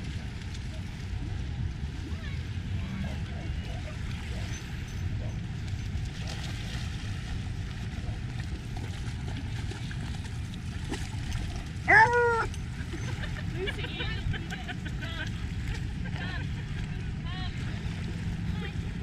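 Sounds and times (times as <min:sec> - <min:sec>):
water: 0:00.0 - 0:19.0
wind: 0:00.0 - 0:19.0
dog whining: 0:11.9 - 0:12.6.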